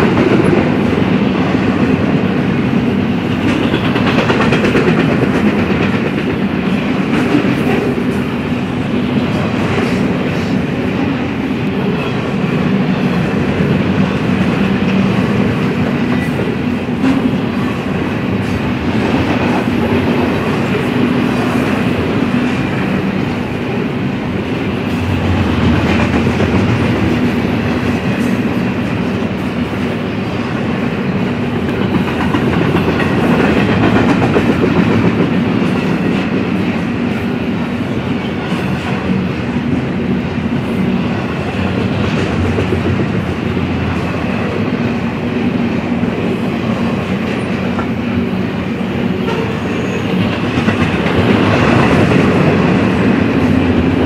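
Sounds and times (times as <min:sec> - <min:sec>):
wheels clacking over rail joints: 0:00.0 - 0:37.2
freight train rumbling past: 0:00.0 - 0:54.0.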